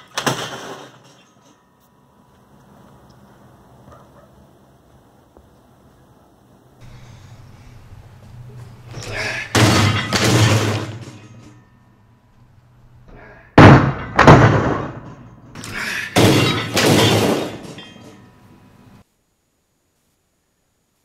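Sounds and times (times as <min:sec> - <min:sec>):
dishwasher crashing onto concrete: 0:00.0 - 0:01.4, 0:09.0 - 0:11.6, 0:13.6 - 0:15.3, 0:16.0 - 0:18.2.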